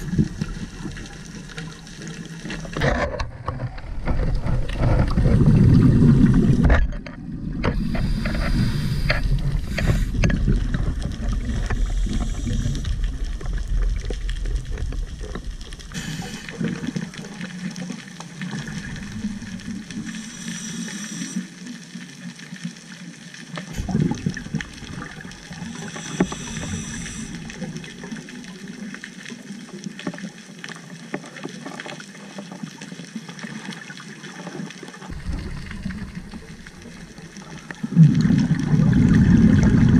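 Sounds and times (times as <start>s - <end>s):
regulator bubbles rushing: 0.0s - 2.9s, 3.5s - 17.8s, 18.4s - 20.3s, 23.7s - 28.6s, 35.1s - 39.9s
muffled underwater ambience: 0.0s - 39.9s
heavy low rumble: 23.8s - 28.1s, 35.1s - 39.9s.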